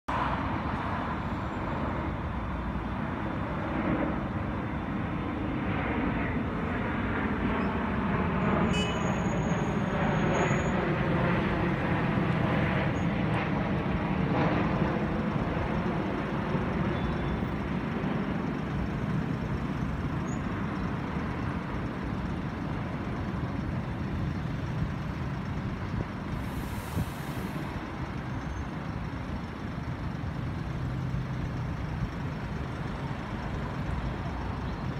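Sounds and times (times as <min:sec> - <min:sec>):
passing road traffic: 0:00.1 - 0:34.9
coach diesel engine running: 0:15.0 - 0:34.9
air hiss: 0:26.4 - 0:27.7.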